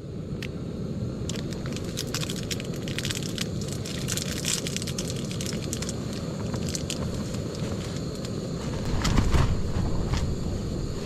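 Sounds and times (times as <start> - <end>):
gas stove roaring: 0.0 - 11.0
plastic wrapper crinkling: 1.3 - 8.3.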